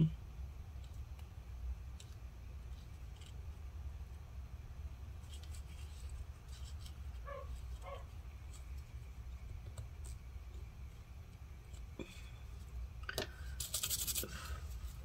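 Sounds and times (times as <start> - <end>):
low steady rumble: 0.0 - 15.0
paper towel rubbing on connector: 13.6 - 15.0.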